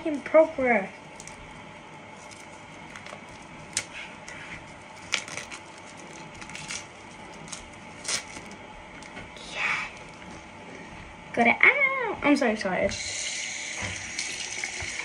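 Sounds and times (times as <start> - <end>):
plastic wrapping crinkling: 1.0 - 9.2.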